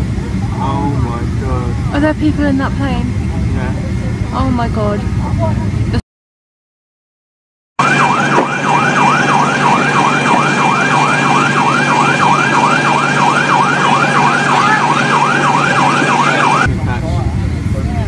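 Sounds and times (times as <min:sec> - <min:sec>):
steady hum: 0:00.0 - 0:06.0
siren yelping: 0:07.8 - 0:16.7.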